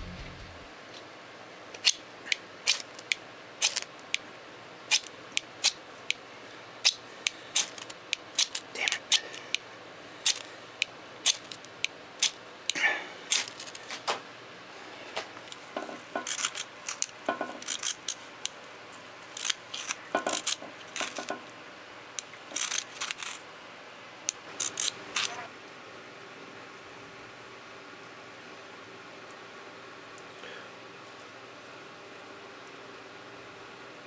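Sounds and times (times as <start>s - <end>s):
flint striker scraping: 2.7s - 3.9s, 6.8s - 9.6s, 10.2s - 10.5s, 11.2s - 14.0s, 16.2s - 18.3s, 19.2s - 21.3s, 22.4s - 23.4s, 24.5s - 25.5s.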